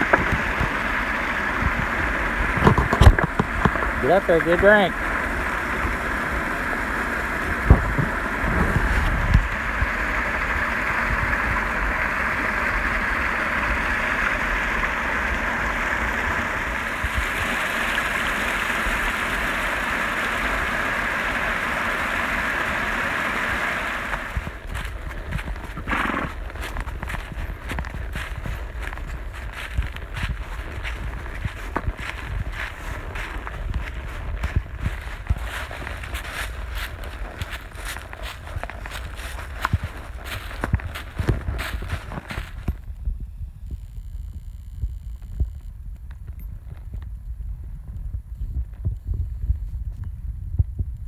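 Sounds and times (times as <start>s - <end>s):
creek splashing over stones: 0.0s - 42.4s
hooves stepping through dry leaves: 24.1s - 43.0s
horse hooves knocking: 24.3s - 42.9s.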